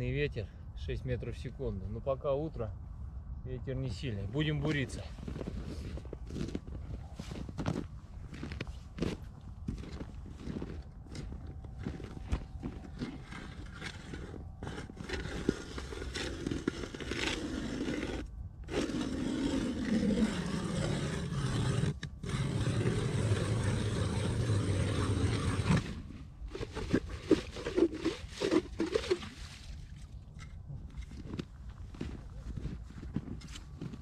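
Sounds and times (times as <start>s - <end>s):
ice auger grinding into ice: 8.4s - 29.7s
auger scraping and knocking: 9.7s - 29.5s.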